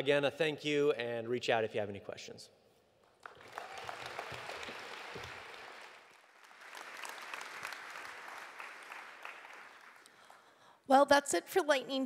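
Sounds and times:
audience applauding: 3.2 - 10.5.

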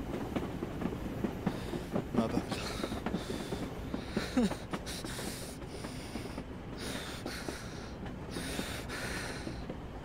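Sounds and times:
train carriage rumble: 0.0 - 10.0
man breathing heavily sniffing: 2.7 - 9.6.

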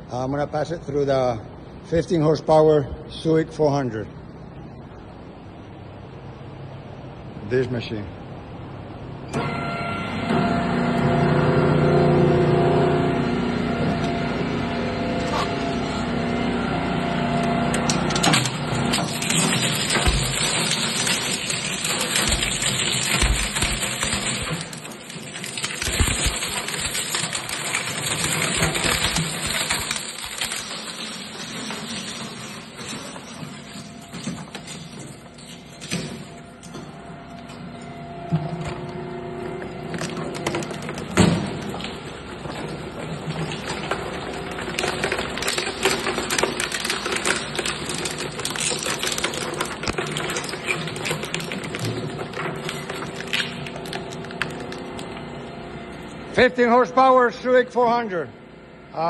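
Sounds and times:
motor hum: 9.3 - 48.5
shredder crackling plastic: 17.7 - 34.8, 39.8 - 55.4.

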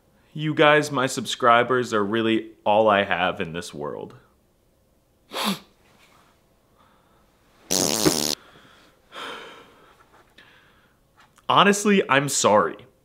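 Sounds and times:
man breathing raggedly: 8.4 - 11.0.

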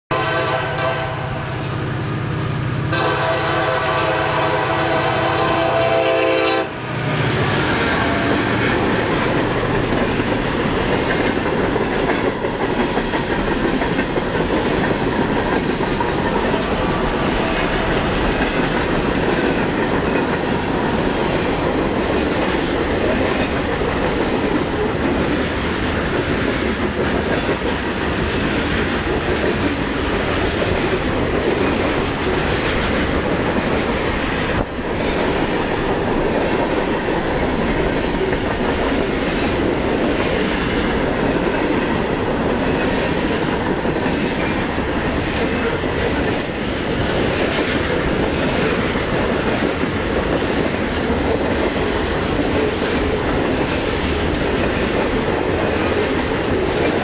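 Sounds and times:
train horn: 0.1 - 1.9, 2.7 - 9.0
freight cars rumbling and clattering: 6.9 - 43.4.

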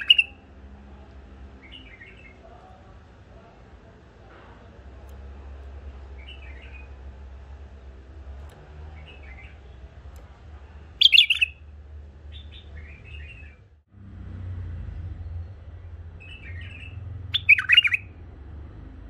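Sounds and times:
bulbuls warbling calls: 11.0 - 11.6.

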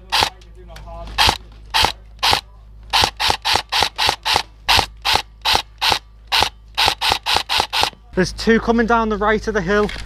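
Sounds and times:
airsoft rifle shots: 0.0 - 0.4, 1.2 - 8.0.

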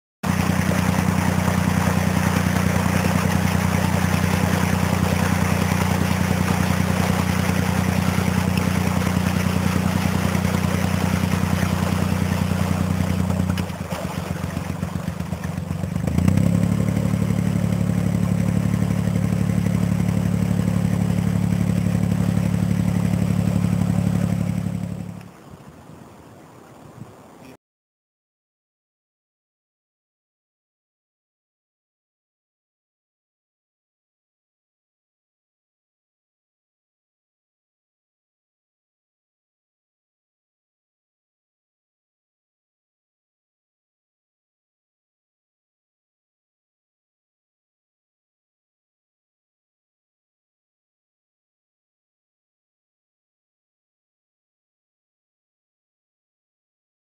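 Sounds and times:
boat engine running: 0.2 - 25.8
propeller churning water: 0.2 - 27.6.

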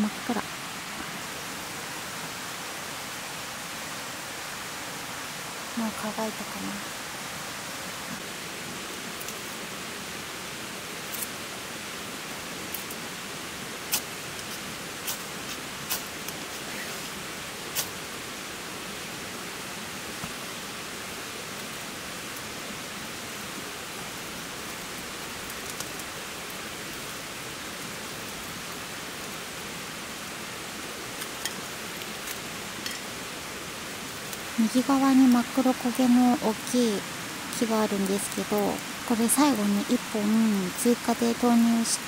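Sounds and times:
steady hiss: 0.0 - 42.0
campfire wood snapping: 9.1 - 9.5, 11.0 - 11.4, 12.7 - 13.0, 13.8 - 16.7, 17.7 - 18.0, 24.6 - 27.0, 31.1 - 33.2.

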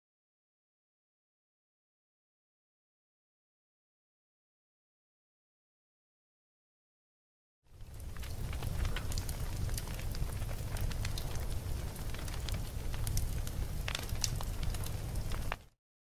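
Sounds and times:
fire crackling and popping: 7.7 - 15.8
fire rumbling: 7.7 - 15.8.

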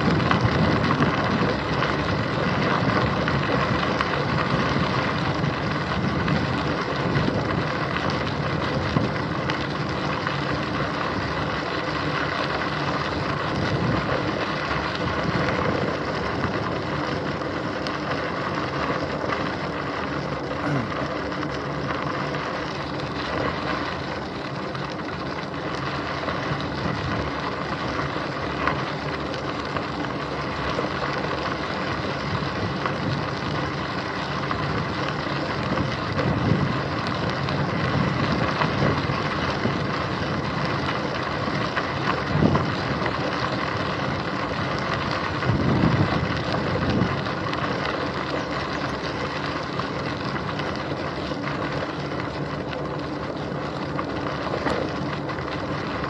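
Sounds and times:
wind noise: 0.0 - 18.8, 26.2 - 51.9
bicycle tyres on gravel: 0.0 - 56.0.

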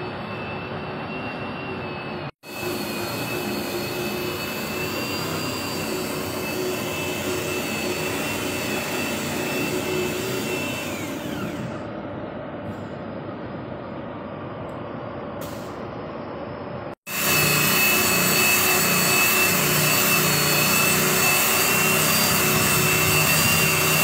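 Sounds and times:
machine motor whining: 0.0 - 11.9.

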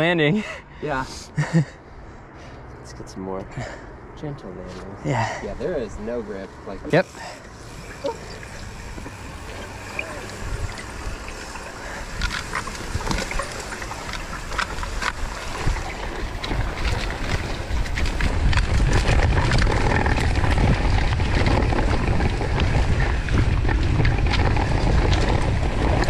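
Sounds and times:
tyres running through mud: 6.9 - 26.0
wind buffeting microphone: 7.7 - 26.0
bike rattling clicks and knocks: 11.4 - 26.0.

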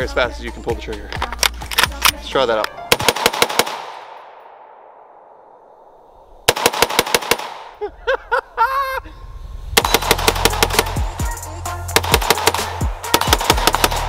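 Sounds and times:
rapid rifle shots: 2.9 - 4.8, 6.5 - 7.8, 9.8 - 11.2, 11.9 - 14.0
gunshot echo: 2.9 - 7.8, 9.8 - 11.2, 12.0 - 14.0.

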